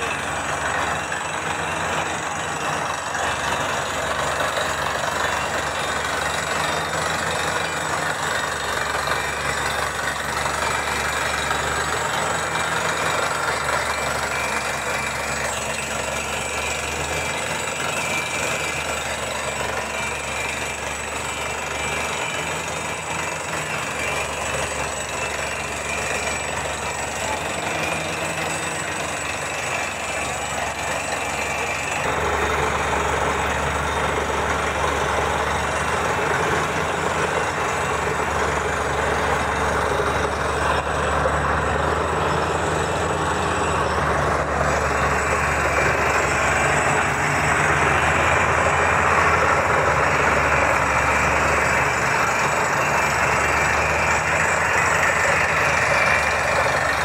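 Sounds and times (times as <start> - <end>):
drilling rig engine: 0.0 - 57.0.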